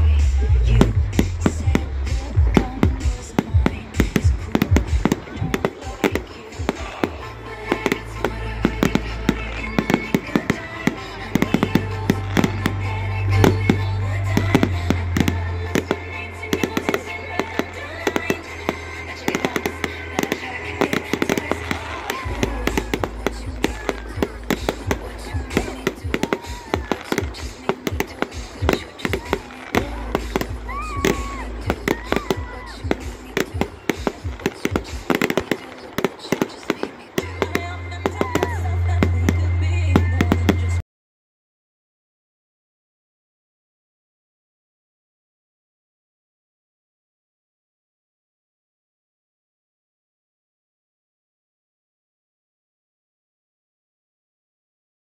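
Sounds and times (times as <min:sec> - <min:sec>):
music with deep bass notes: 0:00.0 - 0:05.6, 0:06.8 - 0:26.3, 0:29.5 - 0:34.5, 0:37.3 - 0:40.8
firework bangs and crackling: 0:00.0 - 0:40.8.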